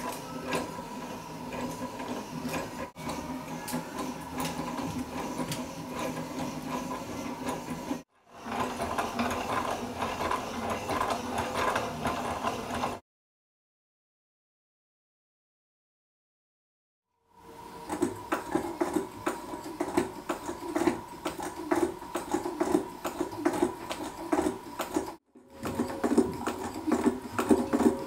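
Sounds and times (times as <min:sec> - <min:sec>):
wooden cams clicking and rattling: 0:18.0 - 0:28.0.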